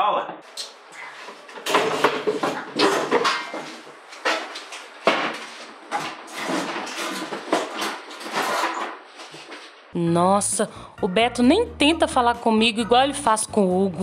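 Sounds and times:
school things clattering: 1.0 - 9.9.

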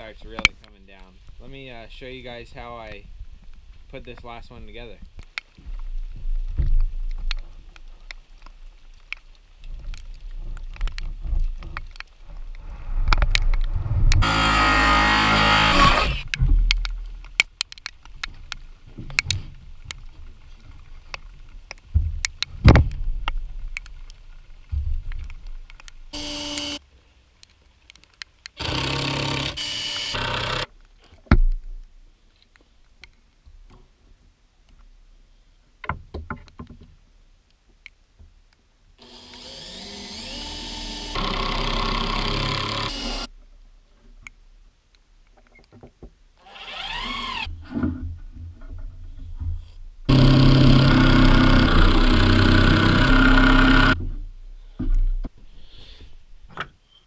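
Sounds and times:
cordless drill boring into wood: 14.2 - 16.3, 26.1 - 26.8, 28.6 - 30.7, 39.0 - 43.3, 46.4 - 47.5, 50.1 - 54.0.

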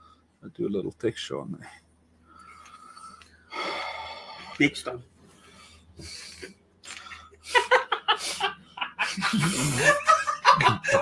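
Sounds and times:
breathy laughter: 7.4 - 11.0.

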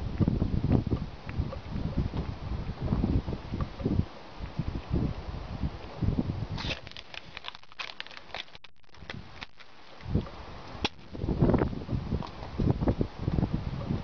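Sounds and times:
wind on microphone: 0.0 - 14.0
teeth crackling into aluminium can: 6.6 - 10.0.

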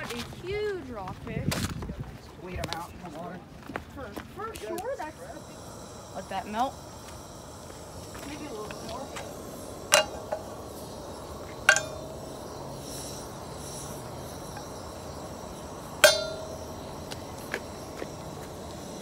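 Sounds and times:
steady stove hiss: 2.5 - 19.0
metallic clinks on frying pan: 11.7 - 12.0, 16.0 - 16.5.

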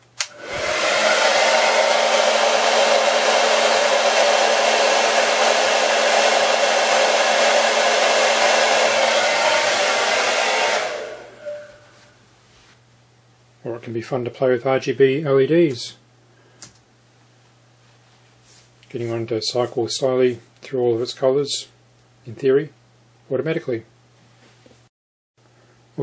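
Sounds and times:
hair dryer running: 0.2 - 12.1.

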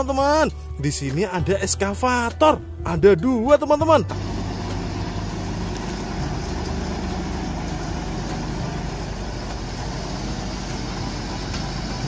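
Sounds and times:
excavator diesel engine running: 4.1 - 12.0.

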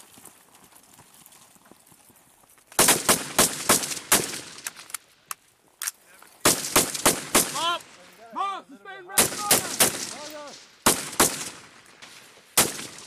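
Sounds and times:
rifle shots with echo: 2.8 - 4.7, 6.4 - 8.0, 9.2 - 13.0.

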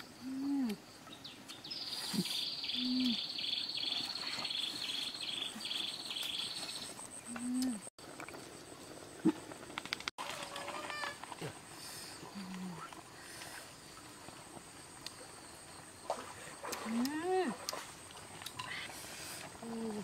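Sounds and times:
insect chirping: 0.0 - 20.0.

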